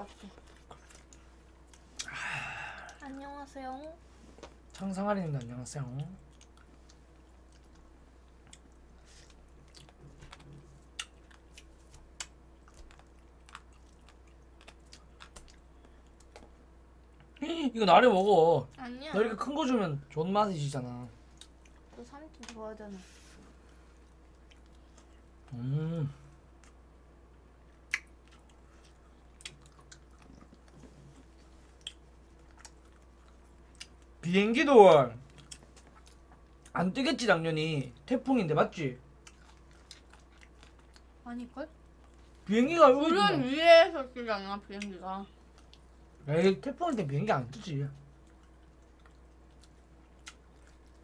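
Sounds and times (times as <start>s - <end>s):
faint steady hum: 0.0s - 51.0s
chewing: 0.2s - 2.2s, 4.4s - 17.4s, 23.7s - 25.6s, 27.7s - 34.2s, 35.2s - 36.8s, 39.2s - 41.2s, 45.5s - 46.2s, 48.0s - 51.0s.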